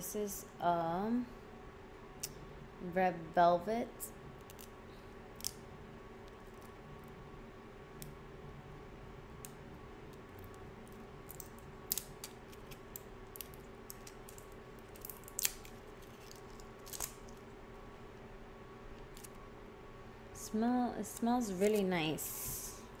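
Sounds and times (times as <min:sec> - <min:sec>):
faint steady hum: 0:00.0 - 0:23.0
plastic packaging clicks and crackles: 0:10.9 - 0:17.4.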